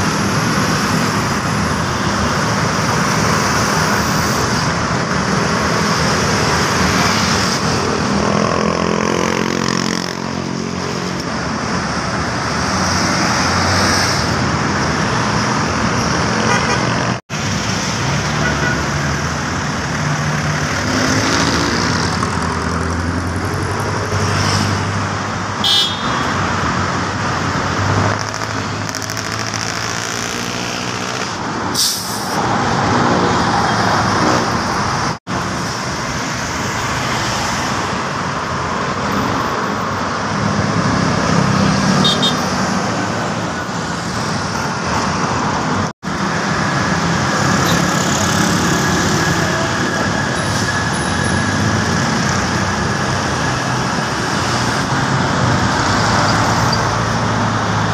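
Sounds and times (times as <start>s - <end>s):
road traffic: 0.0s - 57.9s
car horn toots: 25.6s - 26.2s.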